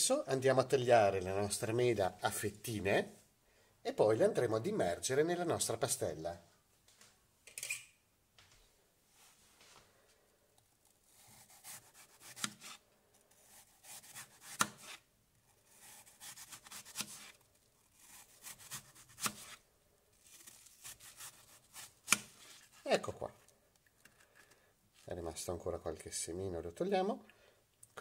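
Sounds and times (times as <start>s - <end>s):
knife scraping through apple: 11.1s - 19.6s, 20.2s - 22.9s.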